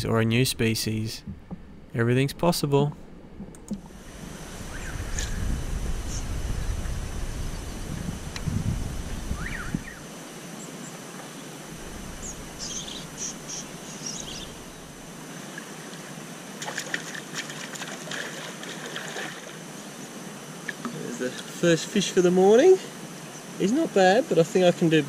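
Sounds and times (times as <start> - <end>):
river water flowing: 3.0 - 7.4, 9.0 - 25.0
faint clicks: 3.4 - 3.9.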